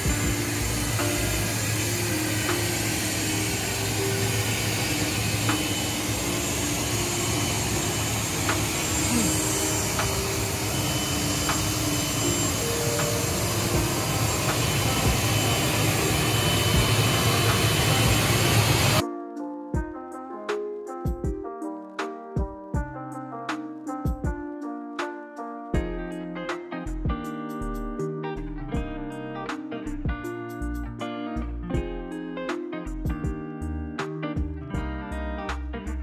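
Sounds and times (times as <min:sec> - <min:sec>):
heavy rushing noise: 0:00.0 - 0:19.0
vehicle running: 0:00.0 - 0:19.0.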